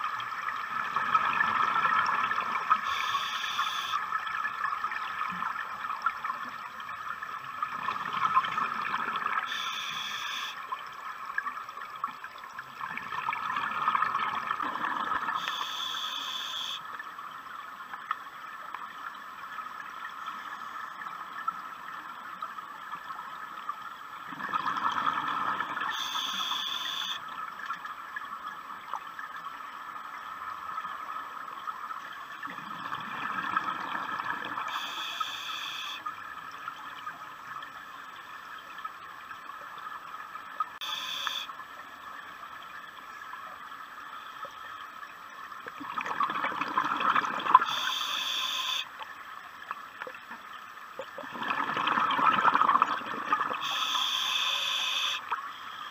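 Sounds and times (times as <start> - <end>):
exhaled bubbles underwater: 0.0 - 2.9, 12.7 - 15.5, 24.2 - 26.0, 32.4 - 34.9, 45.6 - 48.0, 50.9 - 54.0
regulator hiss: 2.7 - 4.0, 9.5 - 10.6, 15.4 - 16.8, 25.9 - 27.2, 34.7 - 36.1, 40.8 - 41.5, 47.6 - 48.9, 53.6 - 55.9.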